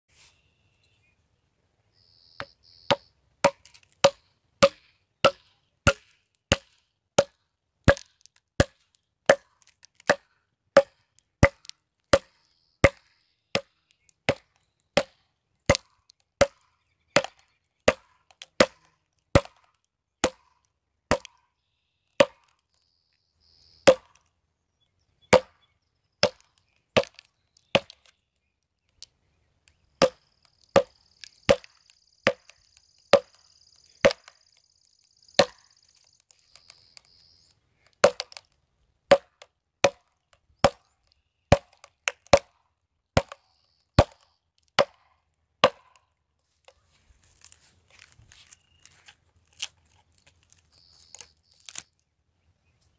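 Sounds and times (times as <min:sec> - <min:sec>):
mallet knocking wooden wedges: 0:02.4 - 0:09.5, 0:30.8 - 0:32.5, 0:35.4 - 0:35.6, 0:38.0 - 0:38.4, 0:39.1 - 0:40.0, 0:43.2 - 0:43.4, 0:45.6 - 0:46.0.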